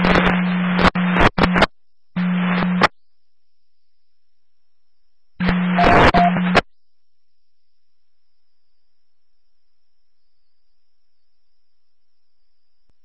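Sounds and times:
radio static bursts: 0:00.0 - 0:02.9, 0:05.4 - 0:06.6
steady beep: 0:05.4 - 0:06.4.

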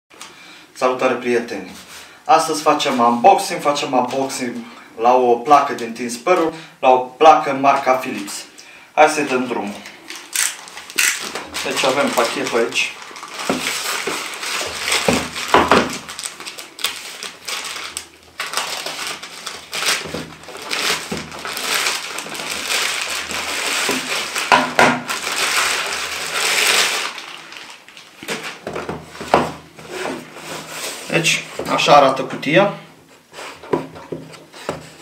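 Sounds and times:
plastic mailer crinkling and tearing: 0:09.7 - 0:32.0.

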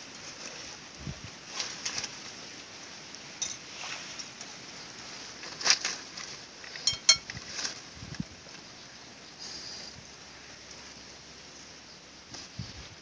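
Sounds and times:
ceramic plate clinking: 0:06.8 - 0:07.3.

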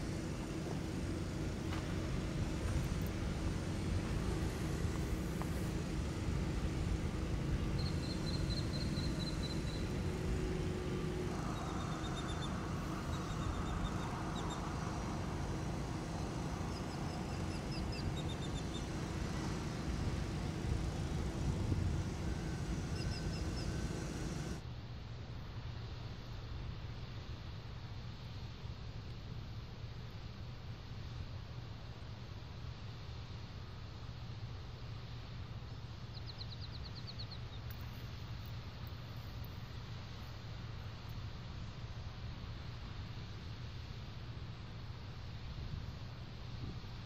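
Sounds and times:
low outdoor rumble: 0:00.0 - 0:47.0
small bird chirping: 0:07.6 - 0:10.2, 0:11.4 - 0:15.3, 0:16.1 - 0:19.5, 0:22.4 - 0:24.6, 0:36.1 - 0:38.0.

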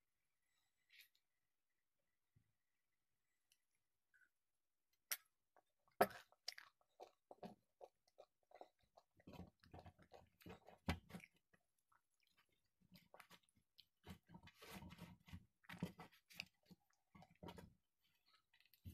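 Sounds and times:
close chewing with crunches: 0:05.1 - 0:18.9.

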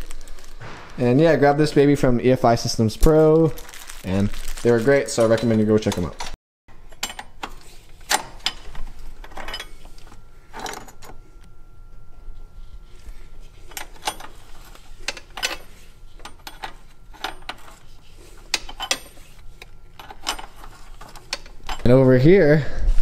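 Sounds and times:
wrench clinking on metal fittings: 0:18.5 - 0:19.4.

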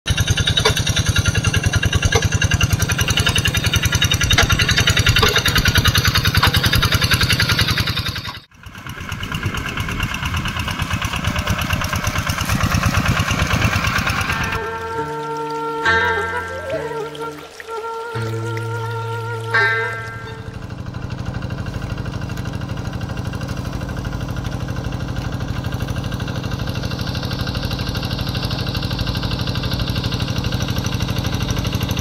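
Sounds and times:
diesel tractor engine chugging: 0:00.1 - 0:17.6, 0:18.2 - 0:32.0.

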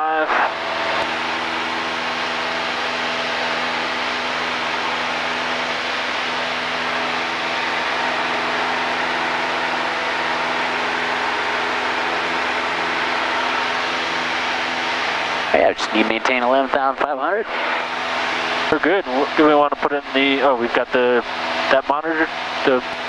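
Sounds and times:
propeller plane engine drone: 0:00.0 - 0:23.0
rush of airflow: 0:17.4 - 0:18.8.

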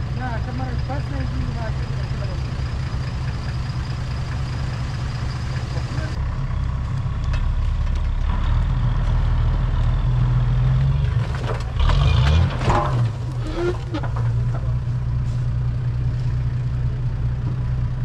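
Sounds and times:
engine running under load: 0:00.0 - 0:18.0.

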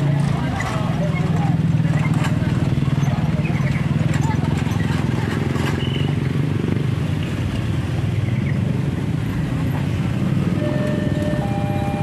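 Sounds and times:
motor scooters passing: 0:00.0 - 0:12.0
passing traffic engine rumble: 0:00.0 - 0:12.0
faint high tone: 0:10.6 - 0:12.0.

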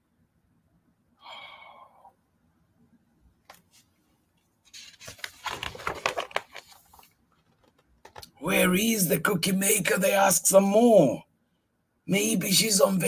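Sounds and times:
book page turning: 0:04.6 - 0:08.3.

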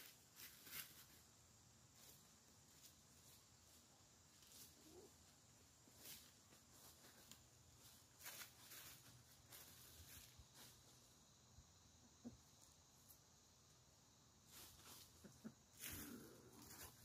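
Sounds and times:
soft rustles: 0:00.0 - 0:01.3, 0:01.9 - 0:11.1, 0:14.4 - 0:17.0.

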